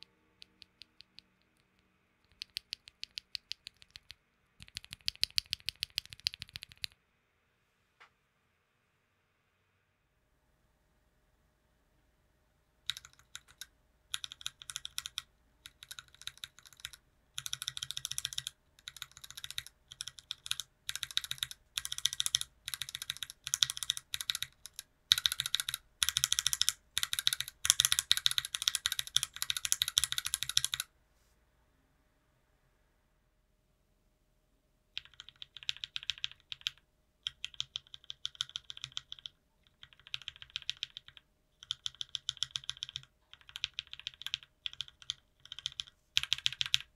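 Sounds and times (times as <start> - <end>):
mechanical keyboard clacks: 2.3 - 7.0, 12.9 - 30.8, 35.0 - 46.9.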